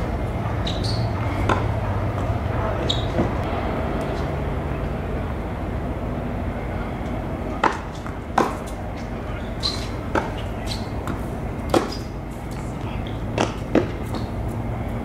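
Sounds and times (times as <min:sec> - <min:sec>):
tennis ball bouncing on hard court: 0:00.0 - 0:04.3, 0:07.5 - 0:12.2, 0:13.0 - 0:14.6
tennis ball struck by racquets: 0:00.0 - 0:04.4, 0:07.5 - 0:12.2, 0:13.0 - 0:14.6
steady background noise: 0:00.0 - 0:15.0.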